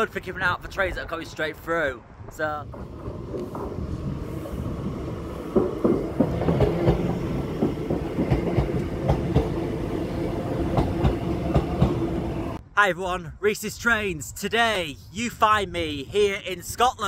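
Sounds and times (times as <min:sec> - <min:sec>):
train hum: 0:02.1 - 0:12.6
train wheels clicking over joints: 0:02.6 - 0:12.5.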